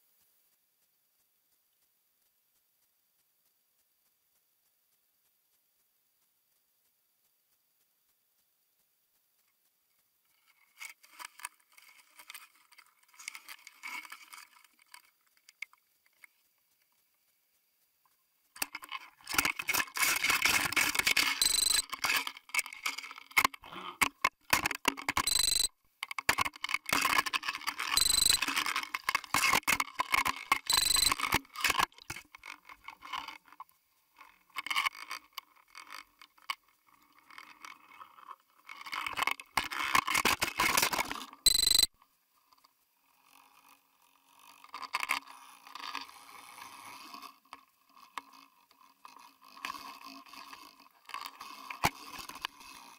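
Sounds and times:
short high tones: 0:21.4 - 0:21.8, 0:25.2 - 0:25.7, 0:28.0 - 0:28.4, 0:30.7 - 0:31.2, 0:41.5 - 0:41.9.

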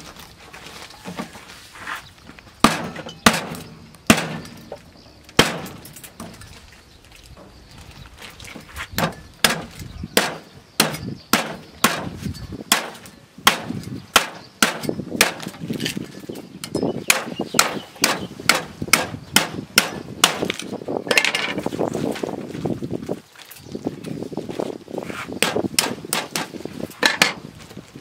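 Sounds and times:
cleaver chopping onto wooden board: 0:09.0 - 0:15.5.

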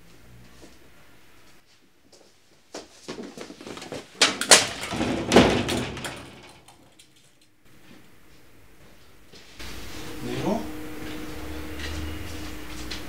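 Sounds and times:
knocks and clattering impacts: 0:03.1 - 0:07.2.

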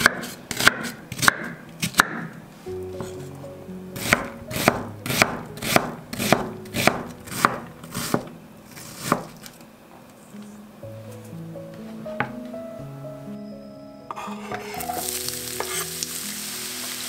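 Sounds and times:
knife chopping on wooden board: 0:00.0 - 0:02.3, 0:04.0 - 0:09.4.

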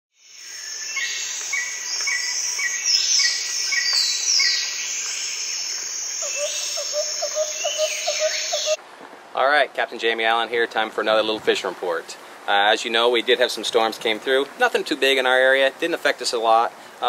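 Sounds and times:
birds chirping and calling: 0:00.6 - 0:08.8
low repeated bird call: 0:00.6 - 0:08.8.

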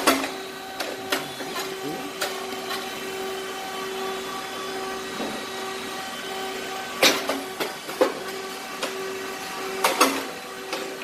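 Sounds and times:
machine humming: 0:00.0 - 0:11.0
pulsing tone: 0:00.4 - 0:07.5.

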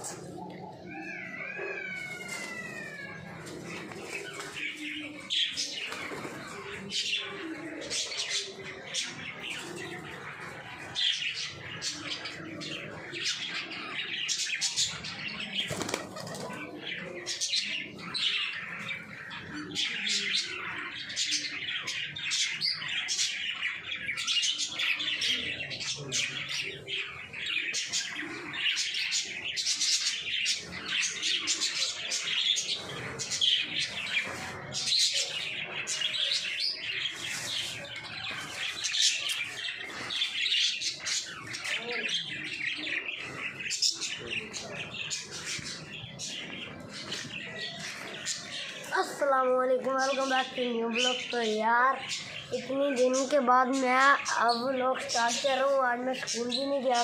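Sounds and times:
bird calls: 0:00.0 - 0:57.0
pigeon wings flapping: 0:15.6 - 0:16.6.

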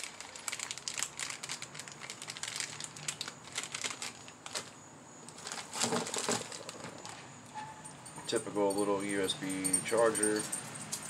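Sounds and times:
plastic bag crinkling: 0:00.0 - 0:07.3.

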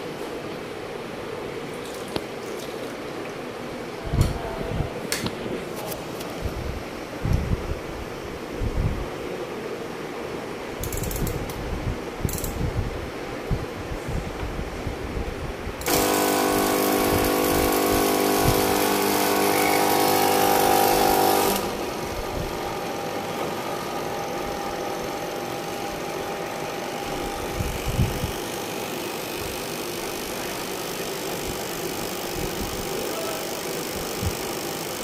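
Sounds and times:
fogging machine buzzing and hissing: 0:15.8 - 0:35.0.

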